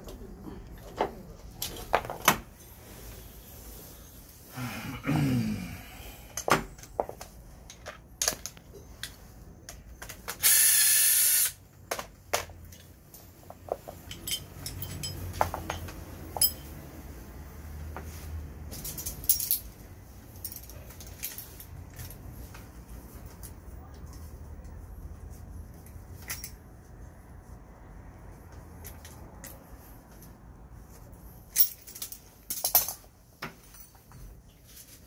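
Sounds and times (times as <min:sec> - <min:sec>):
metallic clicks of brake parts: 0:12.4 - 0:16.7.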